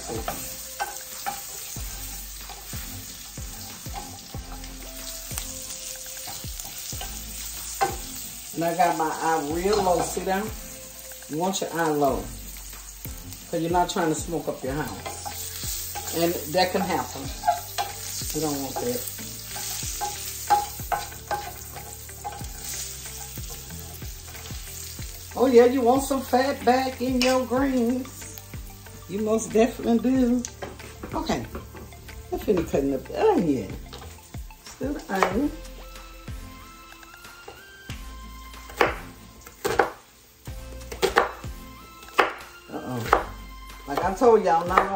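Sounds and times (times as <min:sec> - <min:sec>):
pork sizzling in a frying pan: 0:00.0 - 0:44.9
wooden spoon scraping a pan: 0:13.5 - 0:28.2.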